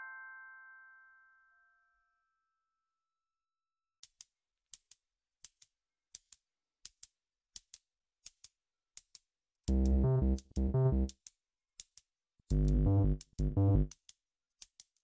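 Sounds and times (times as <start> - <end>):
crisp electronic ticks: 7.6 - 15.0
heavy bass and drum beat: 9.7 - 11.1, 12.5 - 13.9.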